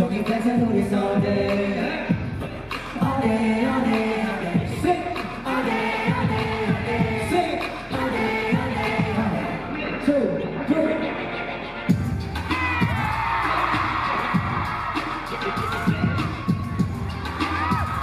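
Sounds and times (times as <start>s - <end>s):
man singing into microphone: 0.0s - 10.1s
hip-hop backing track: 0.0s - 18.0s.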